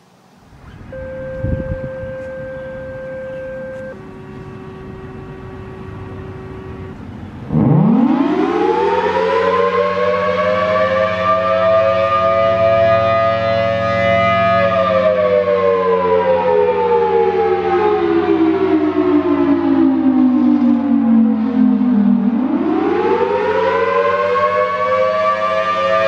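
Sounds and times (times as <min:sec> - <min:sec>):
low steady hum: 0:00.4 - 0:07.8
two-tone warning siren wailing: 0:00.6 - 0:26.0.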